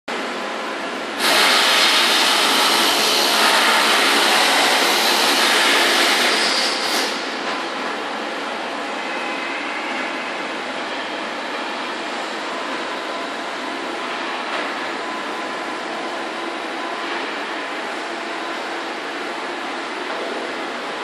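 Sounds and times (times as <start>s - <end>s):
industrial machinery noise: 0.1s - 21.0s
loud hiss: 1.2s - 2.3s.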